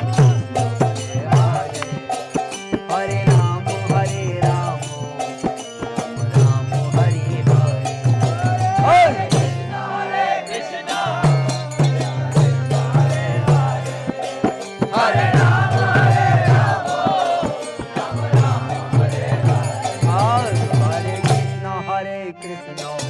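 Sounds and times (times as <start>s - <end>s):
sharp percussive clicks: 1.7s - 2.0s
group call-and-response chanting: 4.8s - 21.6s.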